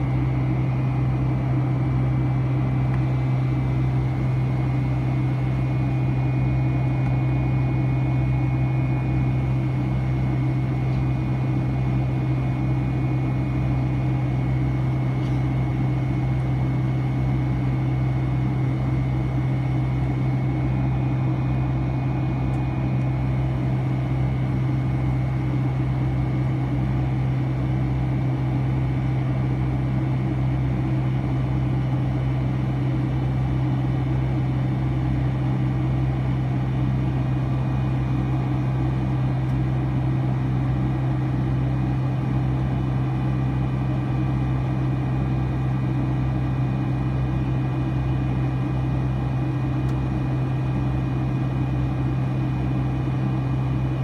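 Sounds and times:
faint high engine whine: 0:00.0 - 0:54.0
jet engine drone: 0:00.0 - 0:54.0.

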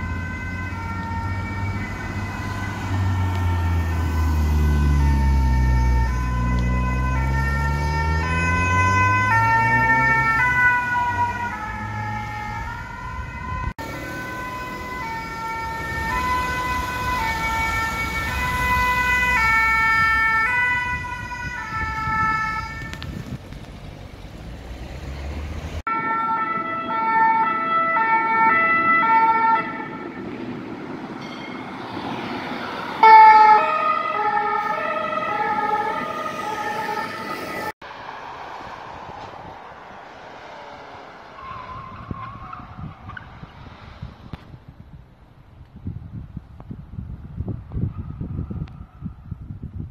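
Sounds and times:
two-tone emergency sirens: 0:00.0 - 0:23.3, 0:25.8 - 0:30.6, 0:32.1 - 0:37.8, 0:47.7 - 0:49.5
engine and traffic rumble: 0:00.0 - 0:49.9.

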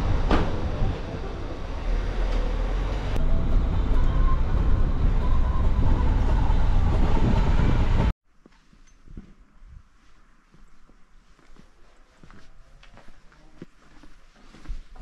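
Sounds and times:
street traffic noise: 0:00.0 - 0:08.1
wind buffeting microphone: 0:03.2 - 0:08.1.

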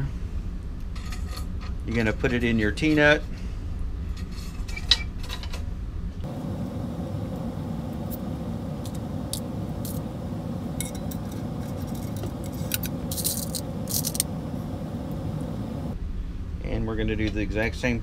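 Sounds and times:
low hum: 0:05.8 - 0:17.0
metal screws jingling in bins: 0:10.8 - 0:14.2.

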